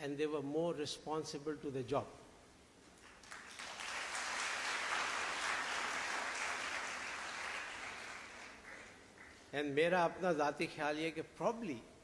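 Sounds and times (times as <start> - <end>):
audience applauding: 3.0 - 9.5.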